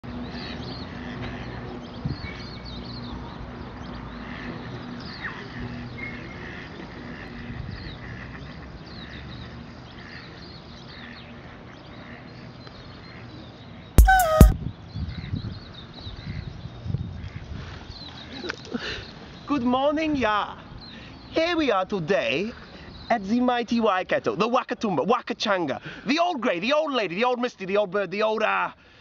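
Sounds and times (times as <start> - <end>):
ducks: 0.4 - 2.4, 4.2 - 10.4
loud short wavering call: 14.0 - 14.5.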